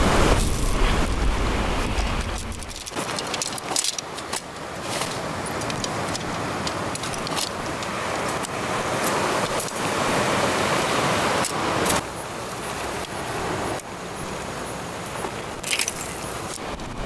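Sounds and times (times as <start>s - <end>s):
low rumble: 0.0s - 3.0s
nylon tent rustling: 0.0s - 12.0s
steady rushing hiss: 0.0s - 17.0s
metal tent poles clicking: 2.3s - 9.8s, 15.6s - 16.7s.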